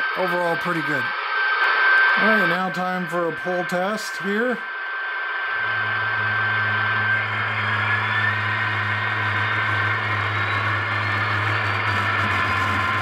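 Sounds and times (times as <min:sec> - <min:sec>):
steady low hum: 0:00.0 - 0:13.0
diesel engine sound from small speaker: 0:05.5 - 0:13.0.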